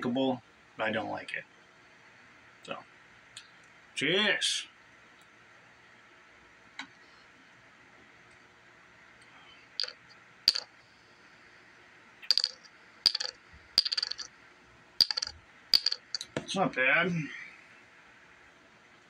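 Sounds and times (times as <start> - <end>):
sharp ringing clicks: 15.0 - 16.3.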